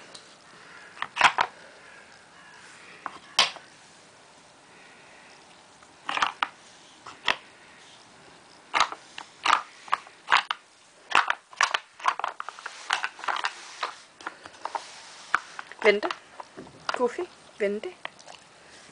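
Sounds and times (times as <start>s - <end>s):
plastic pegs clacking on wood: 1.0s - 1.5s, 6.1s - 7.4s, 8.7s - 17.1s.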